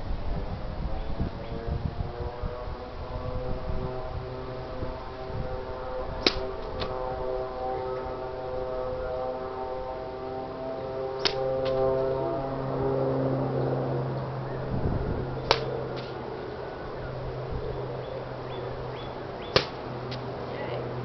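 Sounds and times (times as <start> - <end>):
low engine drone: 0.0 - 21.0
sword cutting target crack: 6.2 - 6.9, 11.2 - 11.8, 15.5 - 16.2, 19.6 - 19.8.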